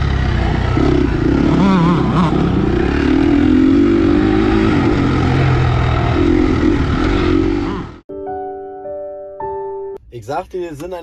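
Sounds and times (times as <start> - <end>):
motocross bike engine revving: 0.0 - 8.0.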